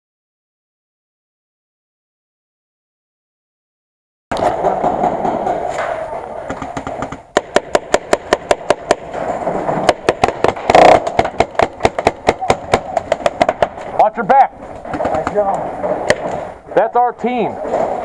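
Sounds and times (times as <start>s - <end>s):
steady background noise: 4.3s - 18.0s
paintball markers popping: 9.9s - 13.8s.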